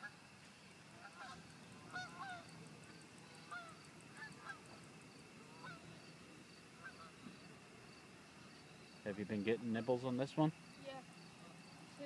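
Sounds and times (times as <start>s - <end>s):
insects chirping: 0.0s - 12.0s
geese honking: 0.9s - 2.6s, 3.2s - 6.1s, 6.8s - 7.4s.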